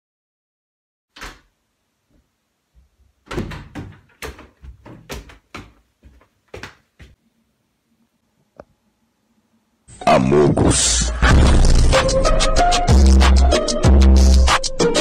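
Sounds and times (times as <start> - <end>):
door opening: 1.1 - 1.5, 3.2 - 5.8
knocks and thuds: 3.3 - 5.8.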